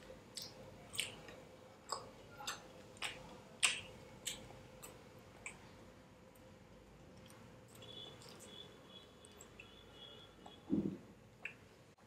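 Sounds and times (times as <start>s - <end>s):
crunchy chewing: 7.1s - 9.8s.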